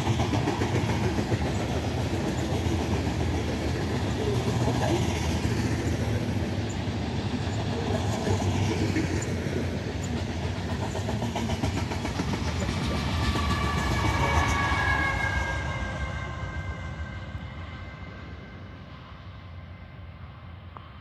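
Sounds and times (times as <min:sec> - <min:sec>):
wheels clicking over rail joints: 0:00.0 - 0:14.2
diesel locomotive passing: 0:00.0 - 0:21.0
freight train rolling past: 0:00.0 - 0:21.0.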